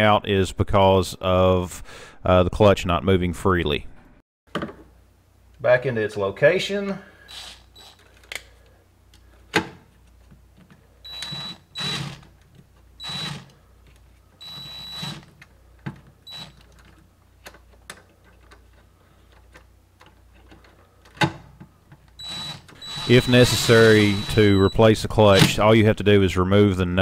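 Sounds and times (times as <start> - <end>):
impact driver whining: 7.3 - 8.1, 11.0 - 12.4, 13.0 - 13.6, 14.4 - 15.4, 16.2 - 16.8, 22.1 - 25.6.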